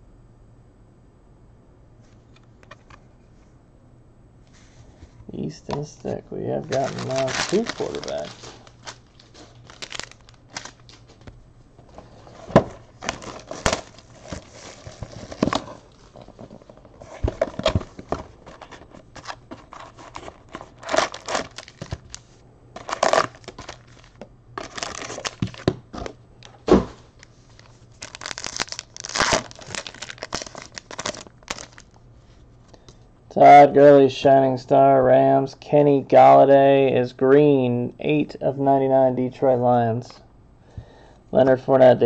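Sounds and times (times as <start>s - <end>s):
foil wrappers crinkling and tearing: 6.6s - 11.2s, 12.5s - 32.0s.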